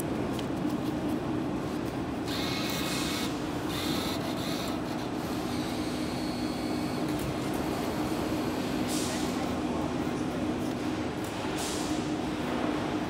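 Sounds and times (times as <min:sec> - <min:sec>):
bill acceptor motor whirring: 0:02.2 - 0:08.9.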